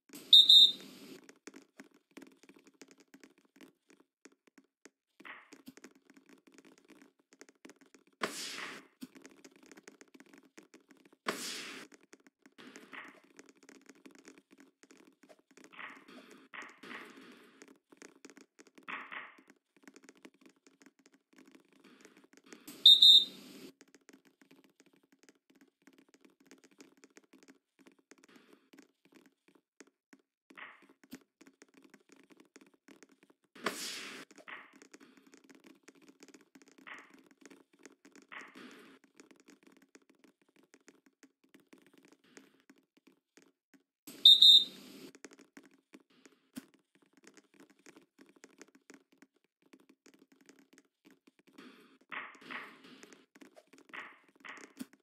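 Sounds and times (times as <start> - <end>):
referee whistle blast: 44.3 - 44.7.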